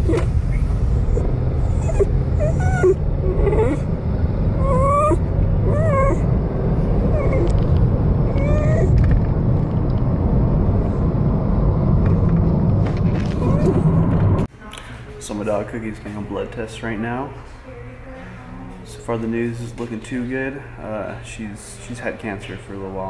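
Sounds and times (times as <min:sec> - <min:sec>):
dog whimpering: 0:00.0 - 0:03.9, 0:04.5 - 0:06.3, 0:07.0 - 0:07.6, 0:08.2 - 0:09.0, 0:13.4 - 0:13.9
car road rumble: 0:00.0 - 0:14.5.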